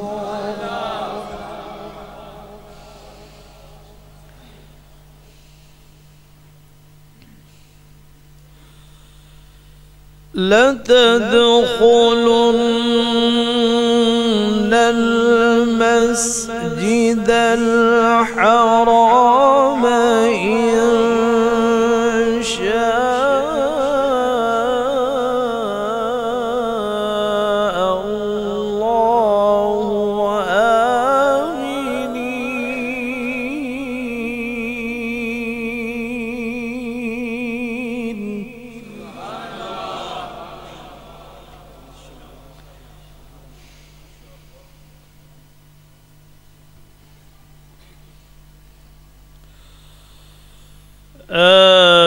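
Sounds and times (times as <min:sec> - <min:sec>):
man reciting melodically: 0:00.0 - 0:03.9, 0:10.3 - 0:43.5, 0:51.2 - 0:52.0.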